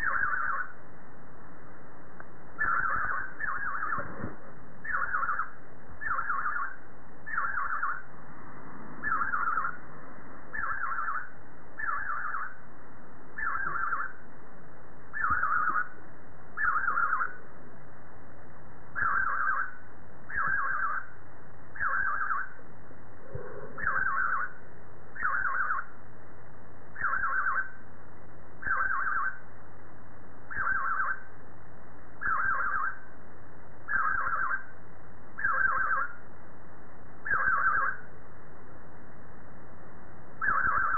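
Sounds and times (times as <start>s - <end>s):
budgerigar calling: 0.0s - 0.7s, 2.6s - 4.1s, 4.8s - 8.0s, 9.0s - 9.8s, 10.5s - 12.6s, 13.4s - 14.2s, 15.1s - 16.0s, 16.6s - 17.4s, 19.0s - 21.1s, 21.8s - 22.6s, 23.8s - 24.6s, 25.2s - 25.9s, 27.0s - 27.8s, 28.6s - 29.4s, 30.5s - 31.3s, 32.2s - 33.0s, 33.9s - 34.7s, 35.4s - 36.2s, 37.2s - 38.0s, 40.4s - 40.9s.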